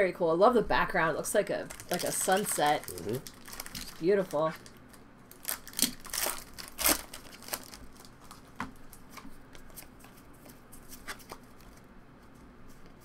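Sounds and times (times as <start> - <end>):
foil wrapper crinkling: 1.6 - 11.8
trading cards being handled: 5.4 - 13.0.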